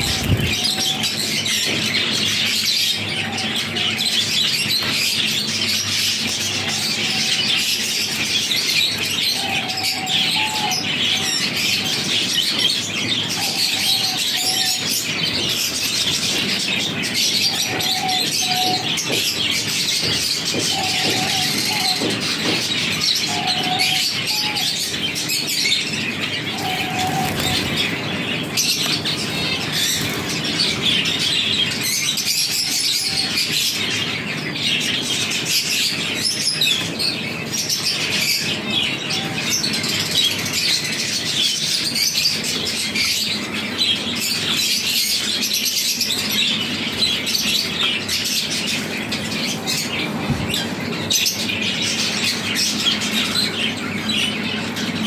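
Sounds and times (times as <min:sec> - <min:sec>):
wings fluttering: 0:00.0 - 0:01.2, 0:26.6 - 0:30.8
finches chirping and twittering: 0:00.0 - 0:55.0.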